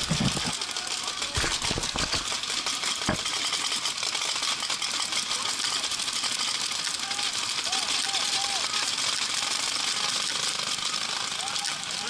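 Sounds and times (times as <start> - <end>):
paintball markers firing: 1.3 - 2.2.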